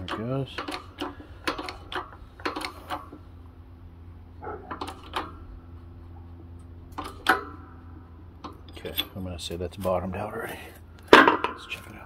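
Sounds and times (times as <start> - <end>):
metallic clicks and knocks: 0.0 - 3.2, 4.5 - 5.5, 6.9 - 7.6
steady low hum: 0.0 - 12.0.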